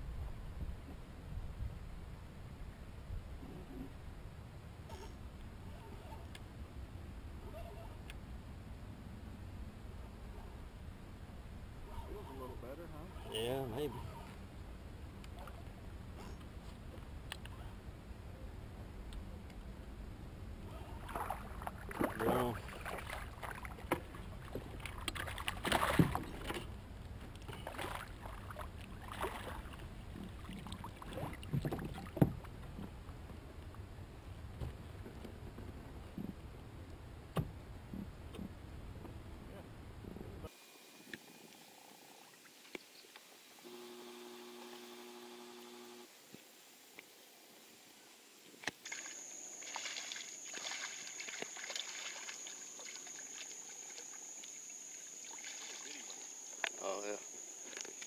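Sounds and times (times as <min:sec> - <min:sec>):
water splashing and sloshing: 0:20.7 - 0:33.8, 0:48.6 - 0:56.8
steady high-pitched whine: 0:43.3 - 0:46.1.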